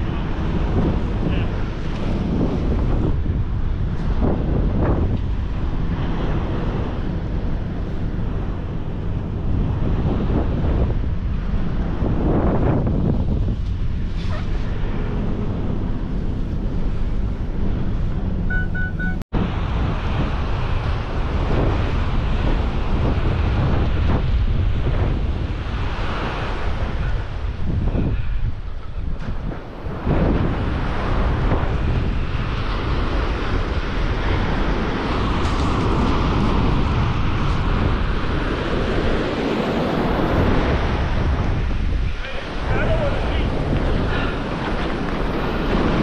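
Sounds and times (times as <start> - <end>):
surf breaking on beach: 0.0 - 17.6, 19.4 - 46.0
wind buffeting microphone: 0.0 - 46.0
short beeps: 18.5 - 19.2.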